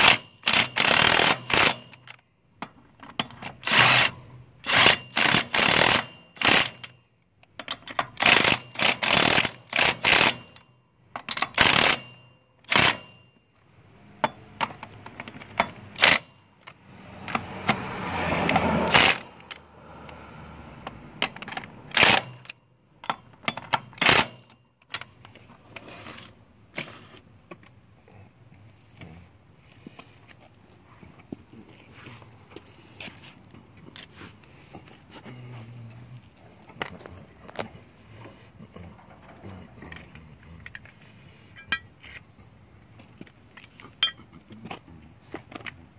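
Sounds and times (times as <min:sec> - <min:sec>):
impact wrench bursts: 0:00.0 - 0:02.0, 0:03.6 - 0:06.9, 0:08.1 - 0:10.6, 0:11.3 - 0:13.2, 0:15.6 - 0:16.3, 0:18.5 - 0:19.4, 0:21.2 - 0:22.5.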